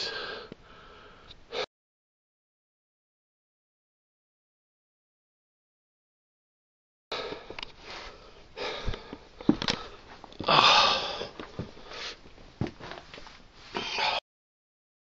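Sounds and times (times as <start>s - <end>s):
close sniffing and breathing: 7.2s - 10.1s, 11.3s - 12.2s.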